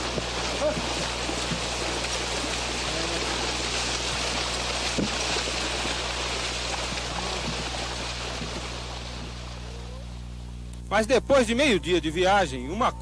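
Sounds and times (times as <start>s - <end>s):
horse splashing through water: 0.0s - 9.8s
low electrical hum: 0.0s - 13.0s.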